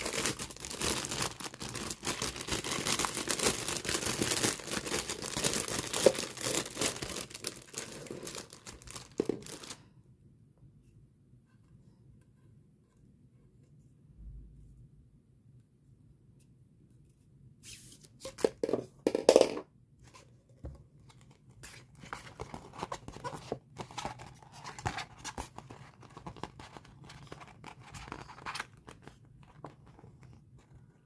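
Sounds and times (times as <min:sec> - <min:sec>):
paper rustling and crackling: 0:00.0 - 0:09.8.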